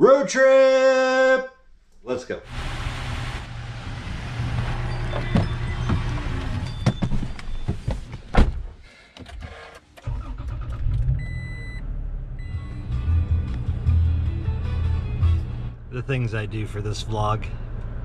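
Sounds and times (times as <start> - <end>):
car engine starting and idling: 2.5 - 18.0
car door shutting: 4.4 - 9.7
dashboard warning chime: 4.8 - 8.0.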